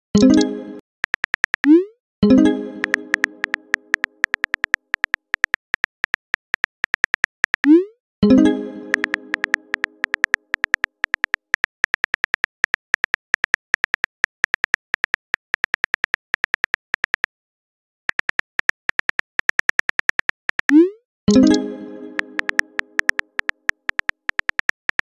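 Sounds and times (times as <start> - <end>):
phone keyboard taps: 1.0 - 1.7, 2.8 - 7.7, 8.9 - 17.3, 18.1 - 20.8, 22.4 - 25.0.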